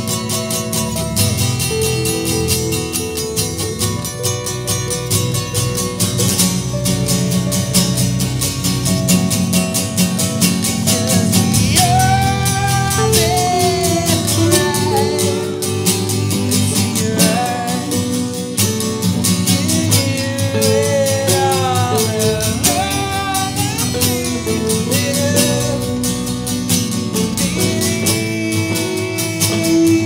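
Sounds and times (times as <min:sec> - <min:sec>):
band playing: 0:00.0 - 0:30.0
lead vocal singing: 0:10.8 - 0:26.5, 0:27.1 - 0:30.0.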